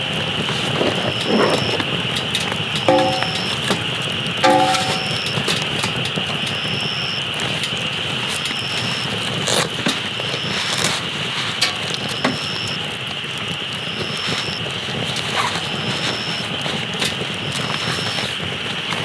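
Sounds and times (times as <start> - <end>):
campfire crackling and popping: 0.0 - 19.0.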